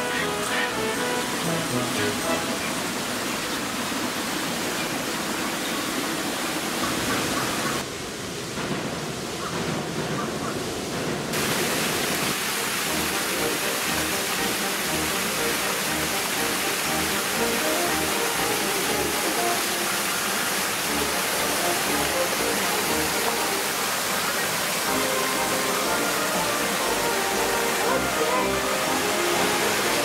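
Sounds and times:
background music: 0.0 - 3.1, 12.8 - 19.9, 20.8 - 24.0, 24.8 - 30.0
small waterfall splashing: 0.0 - 8.6, 11.3 - 30.0.

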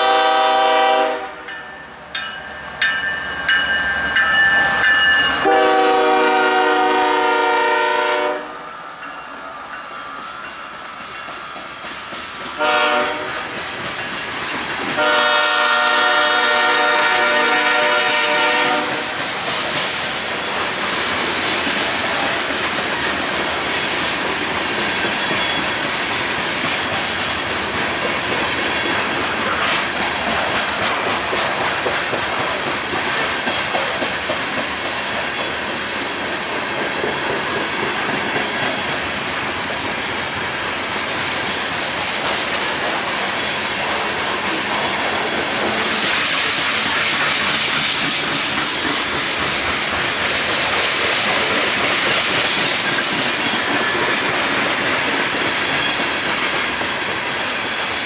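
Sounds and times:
locomotive air horn: 0.0 - 1.5, 5.4 - 8.6, 12.6 - 13.5, 15.0 - 19.1
train wheels clattering on rails: 9.0 - 58.0.

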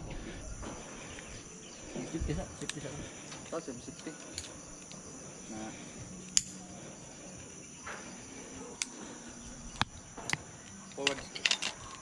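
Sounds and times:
high-pitched insect drone: 0.0 - 12.0
metallic carabiner clicks: 6.3 - 6.6, 9.8 - 12.0.

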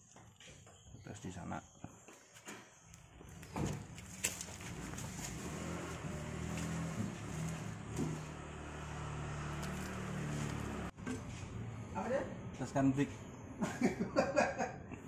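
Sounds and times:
truck diesel engine running: 4.4 - 11.0.

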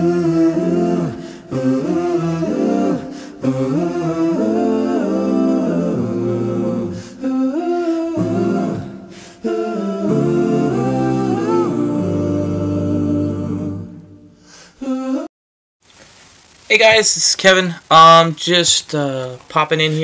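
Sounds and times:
a cappella singing: 0.0 - 15.3.

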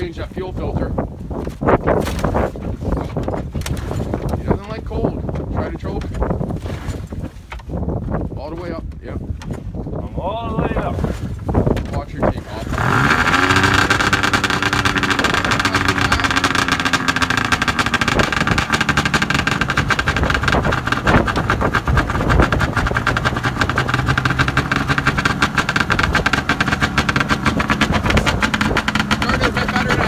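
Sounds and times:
snowmobile engine idling: 12.5 - 30.0.

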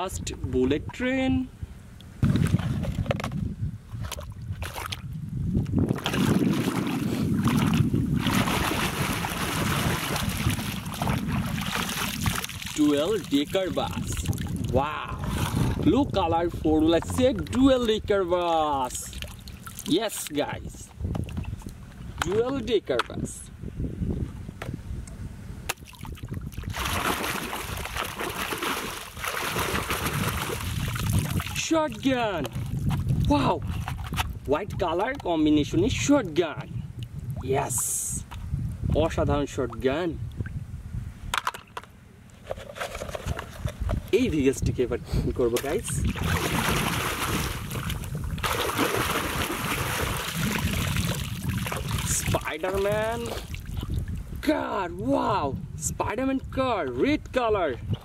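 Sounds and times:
water splashing and sloshing: 2.2 - 16.0, 16.8 - 20.3, 20.9 - 23.1, 25.7 - 35.2, 41.4 - 44.1, 45.5 - 54.4.

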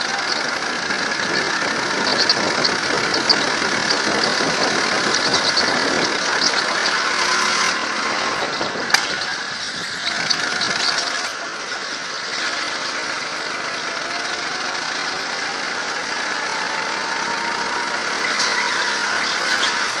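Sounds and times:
go-kart engine running: 0.0 - 20.0.

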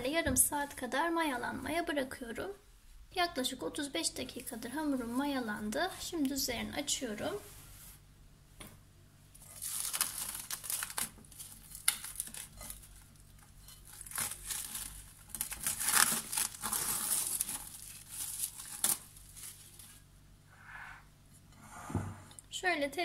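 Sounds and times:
cling film crinkling: 9.4 - 20.1.

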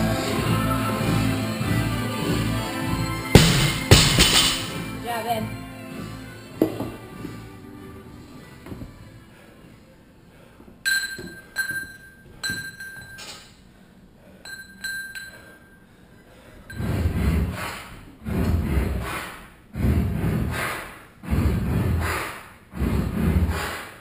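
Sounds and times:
metal clinking: 10.9 - 13.6, 14.4 - 15.8.

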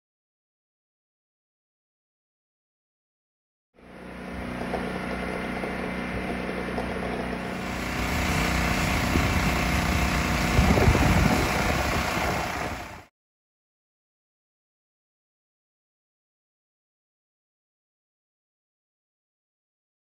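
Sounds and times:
chainsaw engine running: 3.8 - 13.1.

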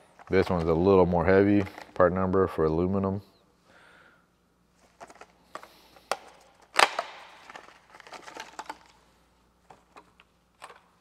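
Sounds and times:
plastic bag crinkling: 4.8 - 10.8
plastic snapping and clicking: 5.1 - 8.9.

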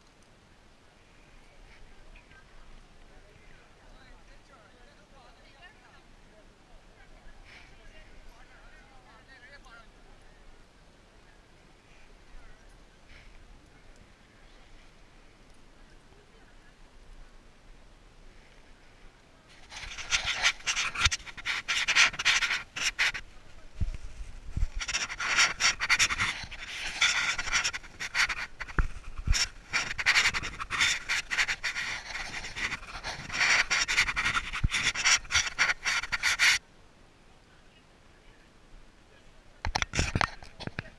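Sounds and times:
rubbing against microphone: 19.5 - 36.6, 39.6 - 40.9
small knocks and crackles: 19.5 - 36.6, 39.6 - 40.9.

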